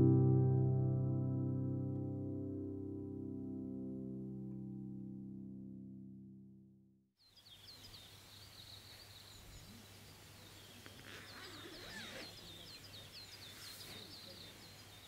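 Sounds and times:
faint outdoor ambience: 7.2 - 15.0
songbird chirping: 7.2 - 15.0.

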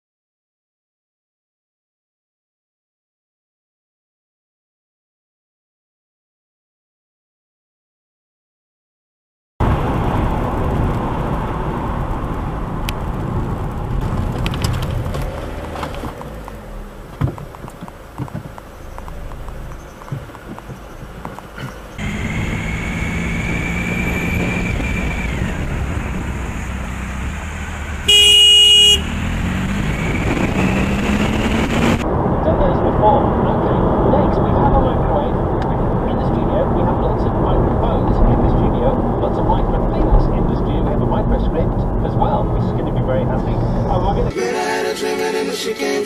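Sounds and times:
road and engine noise in car: 9.6 - 44.4
car horn: 28.0 - 31.2.

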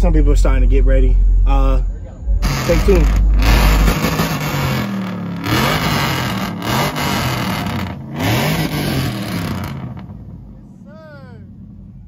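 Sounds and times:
truck engine revving: 0.0 - 10.6.

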